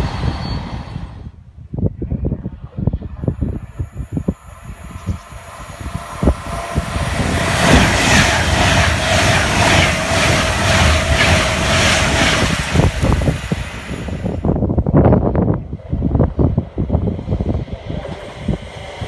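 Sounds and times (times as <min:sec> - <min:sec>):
train passing at speed: 0:00.0 - 0:01.4, 0:03.2 - 0:19.0
wind buffeting microphone: 0:00.0 - 0:19.0
wheels clacking on rails: 0:05.1 - 0:14.5.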